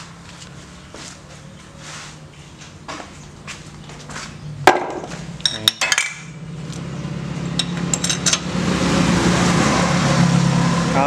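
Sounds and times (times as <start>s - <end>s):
metal tools clinking on metal: 5.4s - 6.4s, 7.5s - 8.5s.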